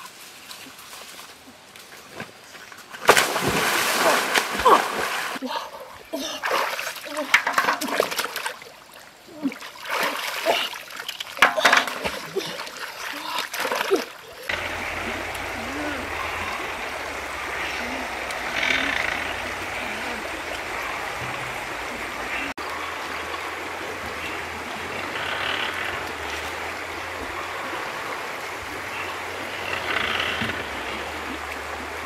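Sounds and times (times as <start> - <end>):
stream running: 0.0 - 32.0.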